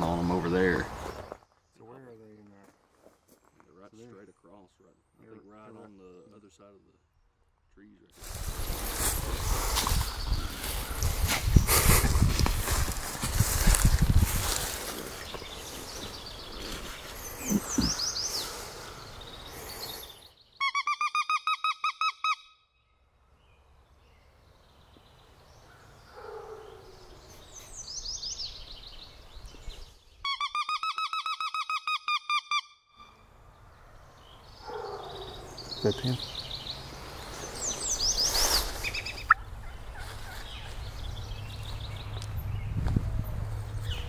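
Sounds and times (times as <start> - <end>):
songbird chirps: 0.0 - 44.0
turkey call rapid notes: 20.6 - 22.6, 30.2 - 33.1.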